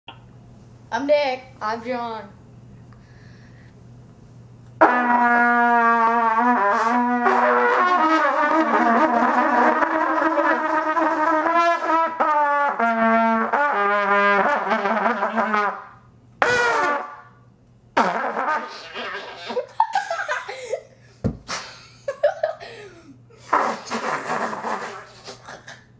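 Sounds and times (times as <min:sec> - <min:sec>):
trumpets playing wavering notes: 0:04.8 - 0:17.4, 0:18.0 - 0:19.6.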